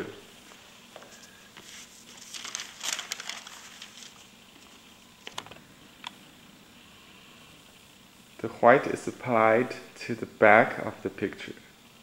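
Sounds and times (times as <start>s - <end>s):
paper rustling and crinkling: 0.5s - 5.6s.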